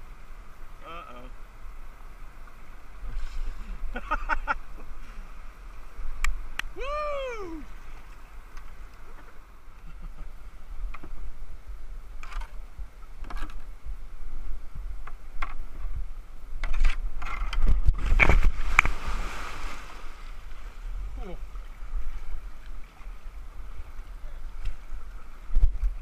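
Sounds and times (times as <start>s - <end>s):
kayak splashing into river: 16.9s - 26.0s.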